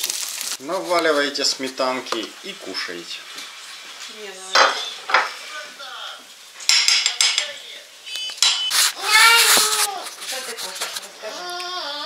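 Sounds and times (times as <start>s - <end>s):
cutlery clinking against plates: 6.6s - 7.6s, 8.2s - 8.8s.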